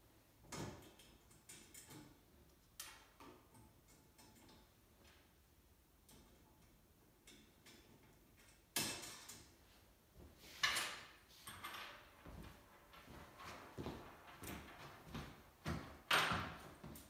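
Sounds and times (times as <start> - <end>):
footsteps: 12.0 - 17.0.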